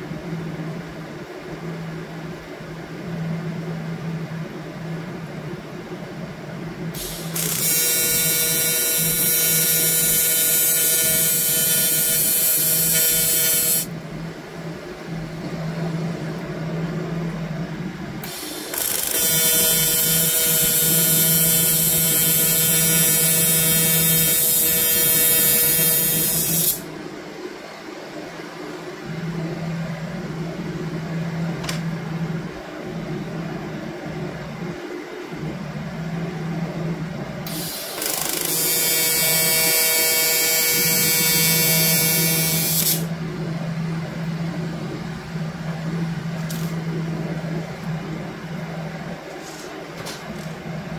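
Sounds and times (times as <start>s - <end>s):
quiet steady hum: 0.0s - 50.9s
welding arc buzzing and hissing: 7.0s - 13.9s, 18.2s - 26.9s, 37.4s - 43.1s.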